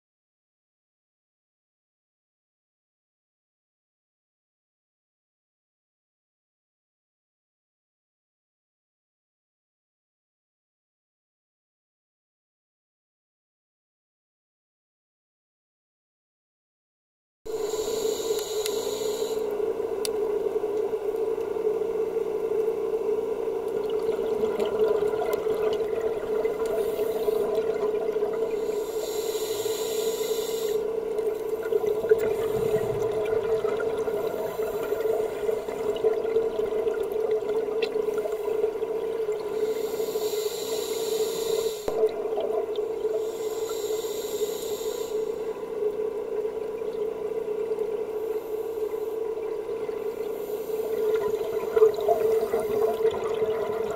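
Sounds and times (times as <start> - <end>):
muffled underwater hum: 17.5 - 53.9
regulator exhaust bubbles: 31.3 - 39.5.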